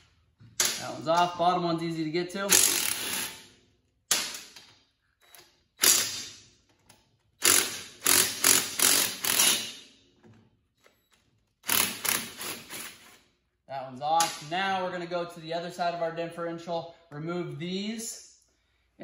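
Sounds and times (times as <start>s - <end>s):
cordless power tool bursts: 5.8s - 6.3s, 7.4s - 9.8s, 11.6s - 13.1s.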